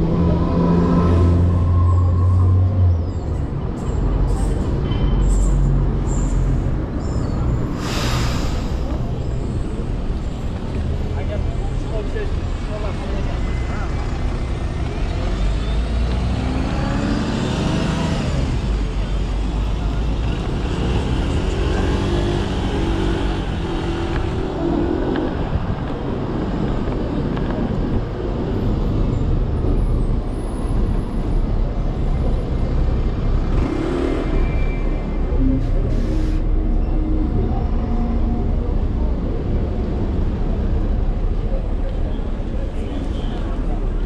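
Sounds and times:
wind and road noise rumble: 0:00.0 - 0:44.0
motor vehicles passing: 0:12.4 - 0:35.9.

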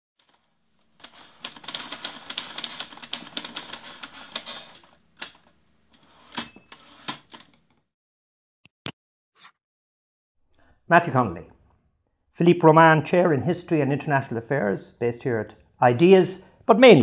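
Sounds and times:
typewriter bell ring: 0:06.3 - 0:07.1.

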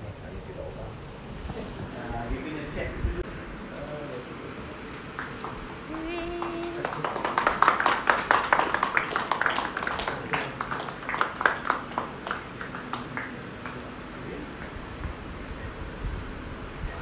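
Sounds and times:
murmured voices: 0:03.6 - 0:08.2
small group clapping: 0:04.8 - 0:15.2.

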